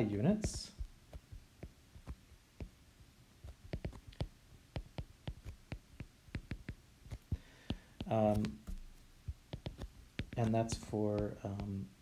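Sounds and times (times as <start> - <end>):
stylus tapping on glass screen: 3.6 - 11.8.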